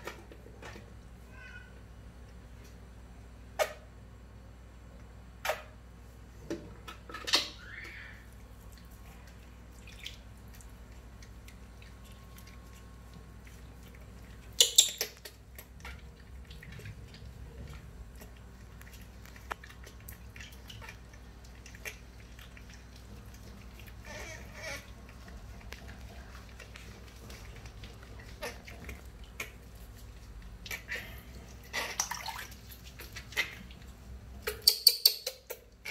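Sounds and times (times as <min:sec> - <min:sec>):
bath water splashing in basin: 0:08.3 - 0:34.5
infant monkey squeak: 0:24.0 - 0:24.8, 0:34.4 - 0:35.9.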